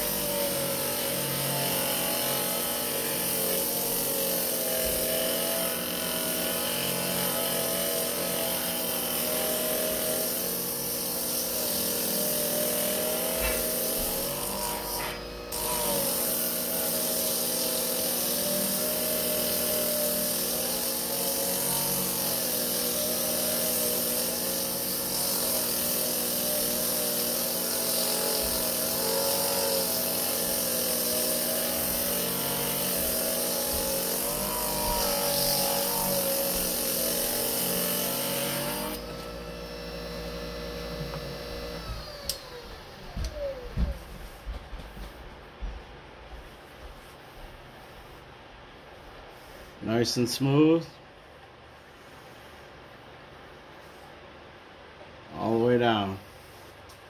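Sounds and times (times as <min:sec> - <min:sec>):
electric motor whining: 0:00.0 - 0:44.4.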